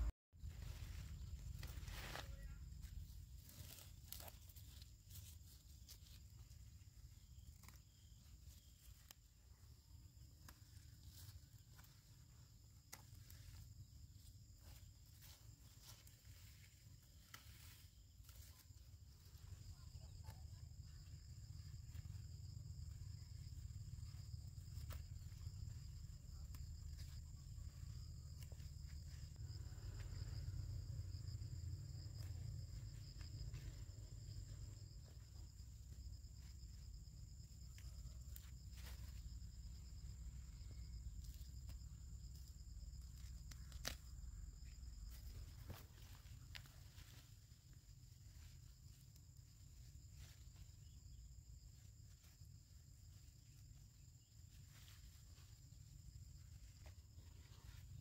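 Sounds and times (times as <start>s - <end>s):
insects trilling: 0.4s - 58.0s
snaps and rustles of picking shoots: 0.7s - 6.5s, 41.2s - 44.4s.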